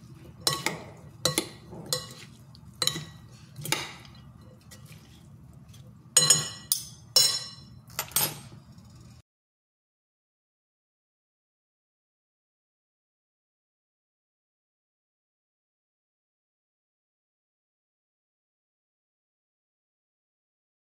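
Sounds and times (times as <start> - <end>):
cutlery clinking on glass bowl: 0.3 - 5.1, 6.2 - 8.6.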